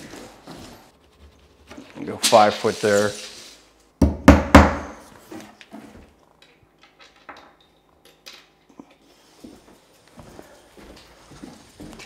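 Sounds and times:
hammer striking wood floor: 4.0 - 5.0
quiet footsteps: 9.1 - 12.0.

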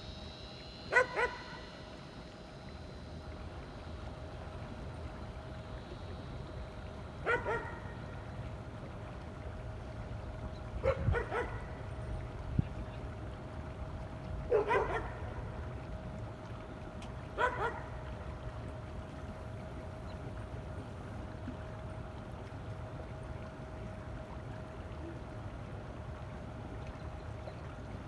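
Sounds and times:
dog barking: 0.9 - 1.5, 7.3 - 7.8, 10.8 - 11.6, 14.5 - 15.2, 17.4 - 17.8.

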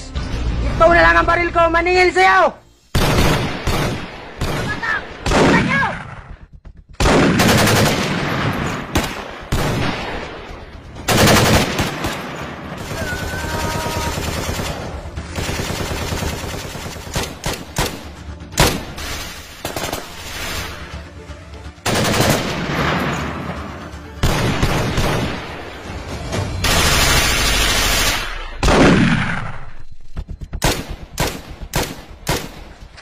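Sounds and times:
rapid automatic gunfire: 7.0 - 9.8, 11.1 - 12.2, 12.8 - 18.0, 21.9 - 22.6, 30.6 - 32.6.

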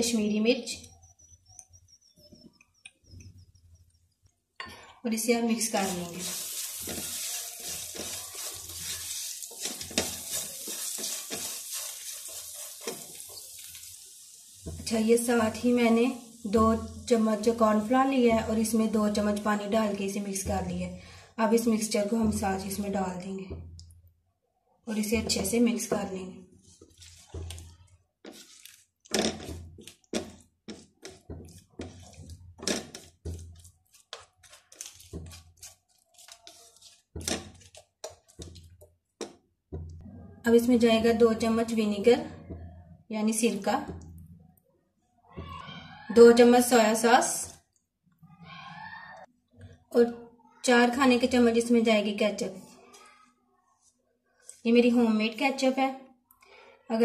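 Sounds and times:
oil sizzling: 5.4 - 20.6, 26.6 - 40.0
spatula scraping frying pan: 5.6 - 17.8, 26.6 - 38.7.

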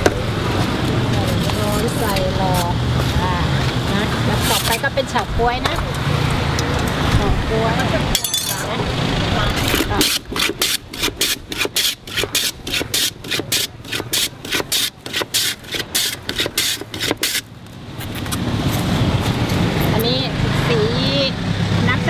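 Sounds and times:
ice rasping on shaver blade: 9.7 - 17.4.

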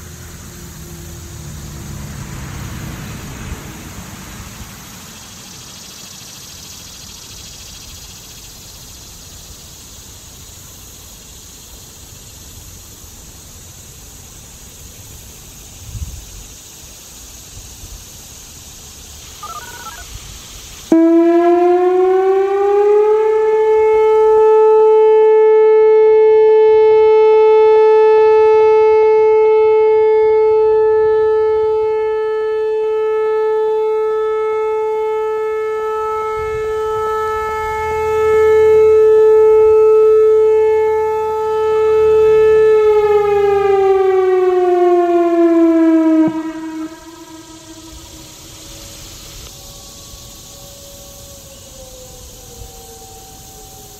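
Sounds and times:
electronic siren wailing: 19.4 - 20.1, 20.9 - 53.9.

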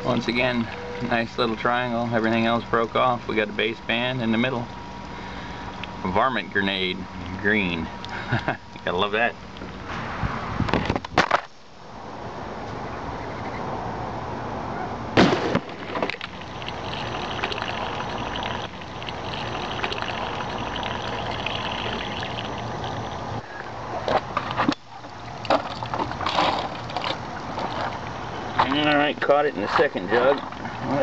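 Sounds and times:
wind noise: 9.9 - 11.3
air rifle shot: 15.2 - 16.0.

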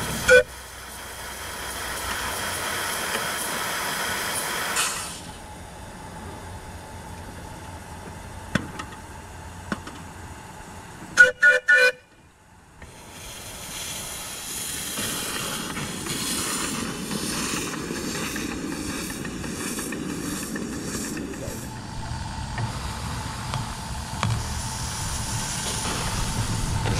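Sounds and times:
steam hissing: 0.0 - 5.5, 12.8 - 26.9
steam whistle toots: 0.2 - 0.6, 11.2 - 12.1.

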